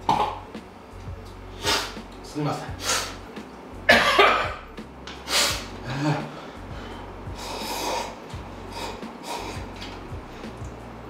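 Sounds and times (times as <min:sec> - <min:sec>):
man coughing and spluttering: 0:03.9 - 0:04.7.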